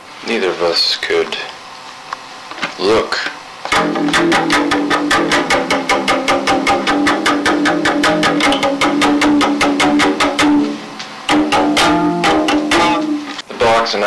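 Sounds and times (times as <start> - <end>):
band music with fast strumming: 3.7 - 13.4.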